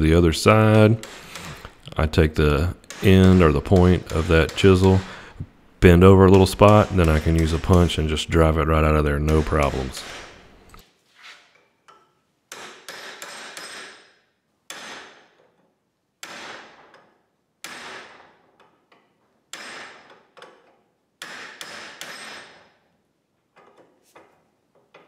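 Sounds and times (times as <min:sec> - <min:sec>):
hammer striking steel punch: 0:06.3 - 0:08.1.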